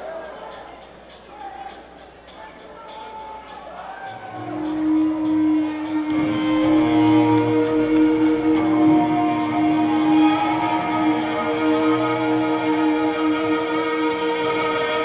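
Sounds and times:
cymbals ticking a steady beat: 0.0s - 15.0s
electric guitar notes ringing: 4.1s - 15.0s.

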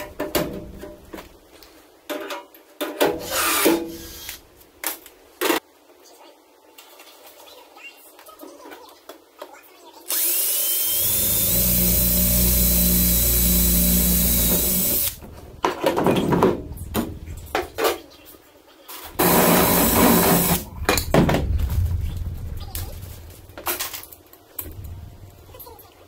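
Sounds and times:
cordless drill drilling into metal: 10.1s - 15.2s, 19.2s - 20.6s.

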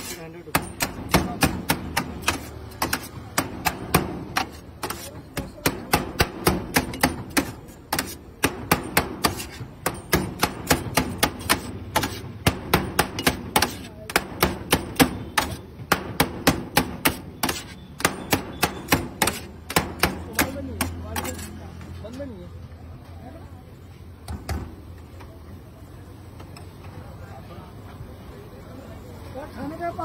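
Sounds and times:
cleaver chopping meat on metal: 0.0s - 21.6s.

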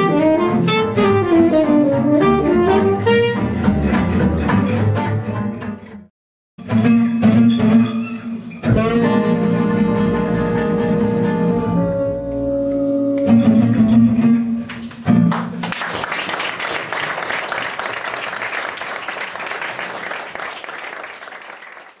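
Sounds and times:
swing band with guitars and bass: 0.0s - 6.0s, 6.6s - 15.7s
audience applauding: 15.3s - 22.0s.

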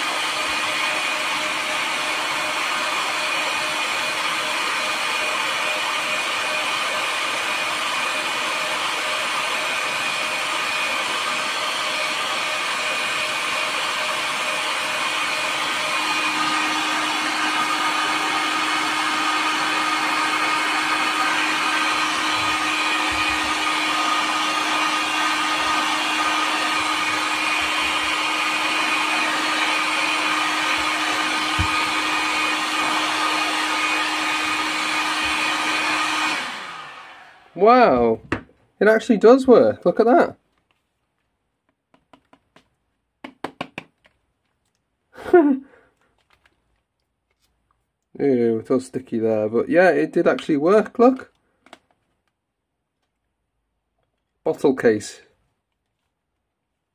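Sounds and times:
heat gun blowing hiss: 0.0s - 38.0s.

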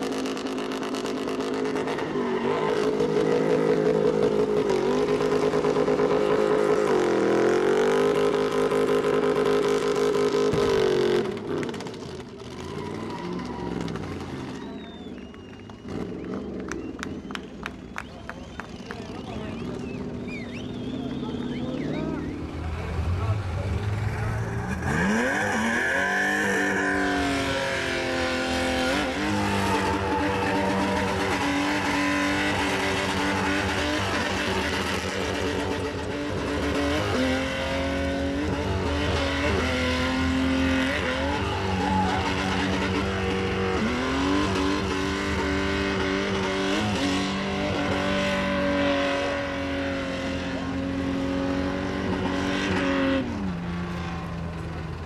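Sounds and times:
tyres squealing on asphalt: 1.6s - 5.1s, 12.4s - 23.1s, 23.8s - 48.6s
engine revving high: 20.5s - 54.0s.

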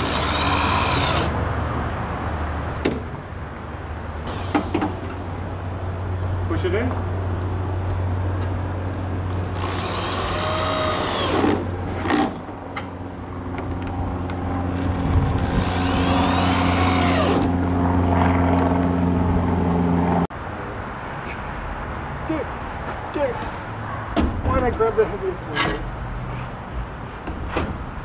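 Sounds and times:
power drill drilling into wood: 0.0s - 1.3s, 9.6s - 12.2s, 15.4s - 17.5s.

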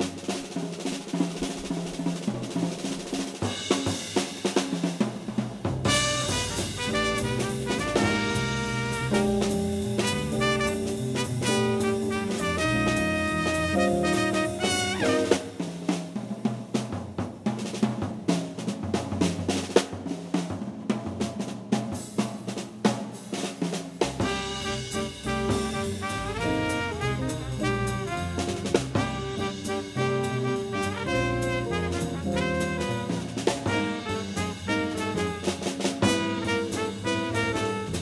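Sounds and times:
drum kit: 0.0s - 38.0s
double bass: 5.5s - 15.5s, 24.2s - 38.0s
trumpet: 5.8s - 15.6s, 24.2s - 38.0s
saxophone: 5.9s - 15.5s.

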